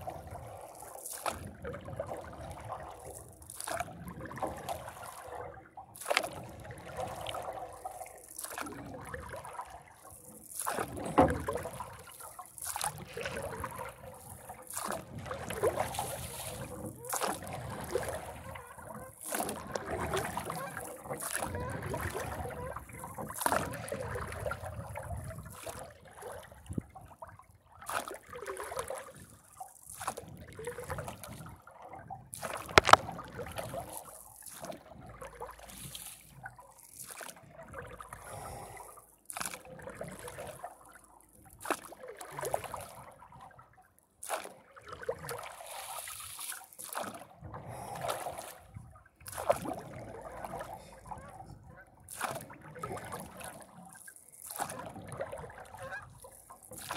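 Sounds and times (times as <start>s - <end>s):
paddle stroking through water: 0.0s - 24.7s, 32.4s - 37.3s, 45.3s - 56.9s
water splashing and trickling: 0.0s - 56.9s.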